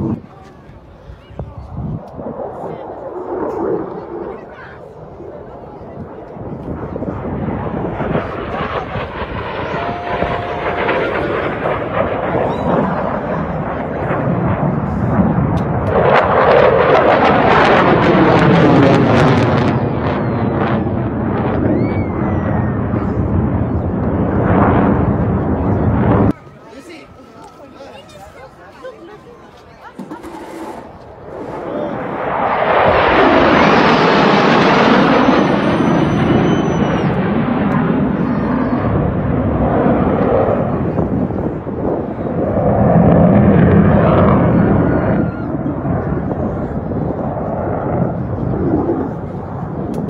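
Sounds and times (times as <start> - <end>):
jet aircraft flying over: 0.0 - 50.0.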